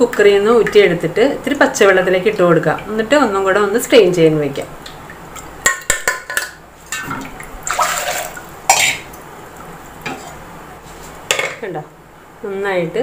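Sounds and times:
water splash: 6.9s - 9.2s.

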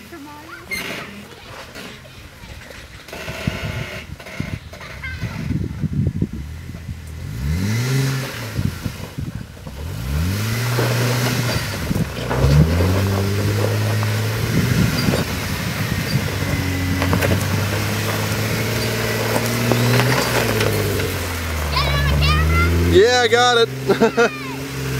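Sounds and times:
off-road vehicle engine revving: 0.0s - 24.9s.

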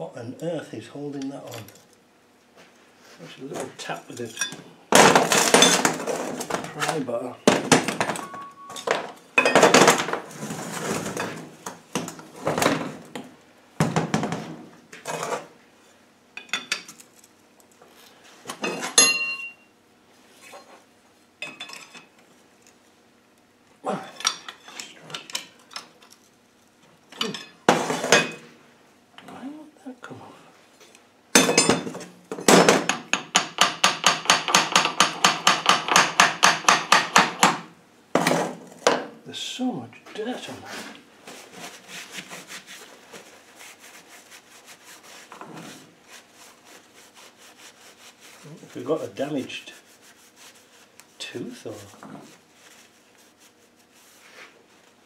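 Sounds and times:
hammer tapping on metal: 32.9s - 37.6s.

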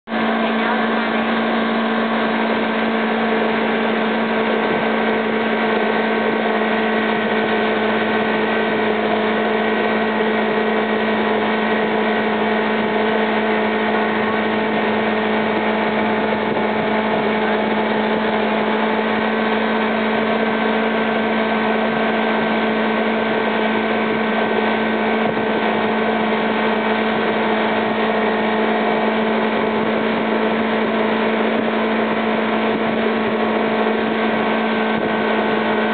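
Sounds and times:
boat engine humming: 0.0s - 35.9s
water rushing from wake: 0.1s - 35.9s.

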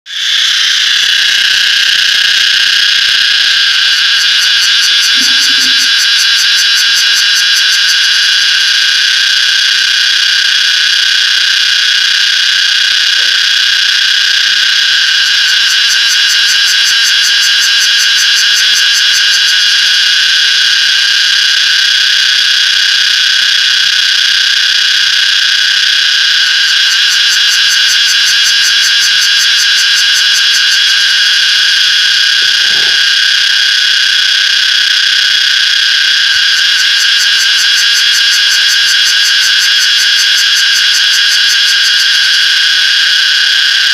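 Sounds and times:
cicada buzzing: 0.1s - 43.9s.

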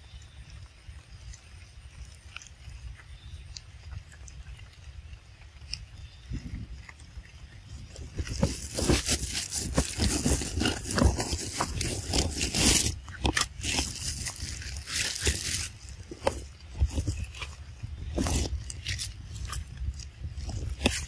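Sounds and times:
scraping and rustling on microphone: 6.0s - 21.0s.

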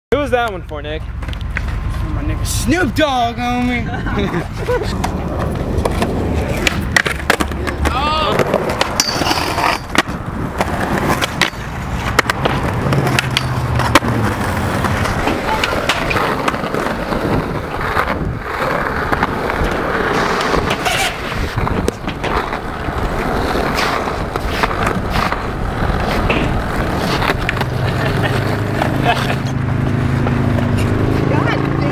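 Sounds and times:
skateboard wheels rolling on concrete: 0.1s - 31.9s
skateboard clacks popping and landing: 4.8s - 29.5s.

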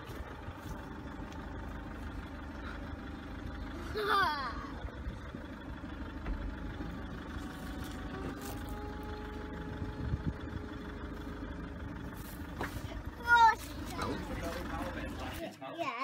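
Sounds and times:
low rumble: 0.0s - 15.4s
electric roof mechanism whining: 4.7s - 13.2s.

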